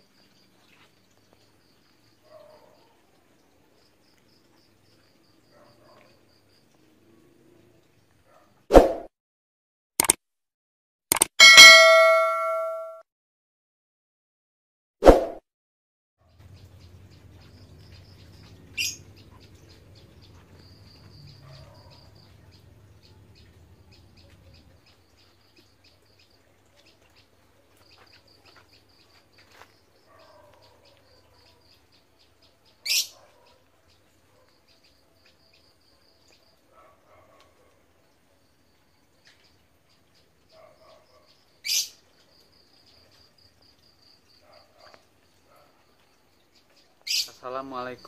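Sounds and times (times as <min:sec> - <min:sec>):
single ding: 0:11.4 - 0:13.0
small birds chirping: 0:16.3 - 0:48.0.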